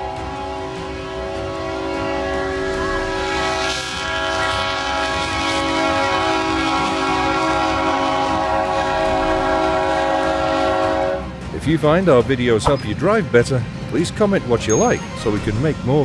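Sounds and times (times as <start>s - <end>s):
vehicle horn blast: 0.0s - 11.3s.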